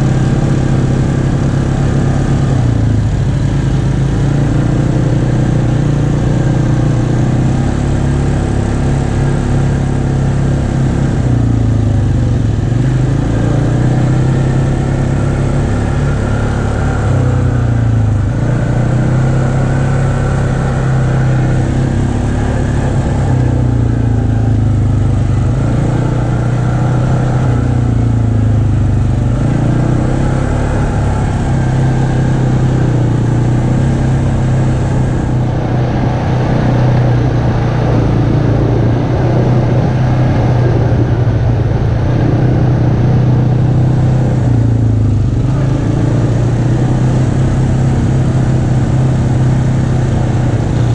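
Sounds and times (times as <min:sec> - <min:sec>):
atv engine running: 0:00.0 - 0:50.9.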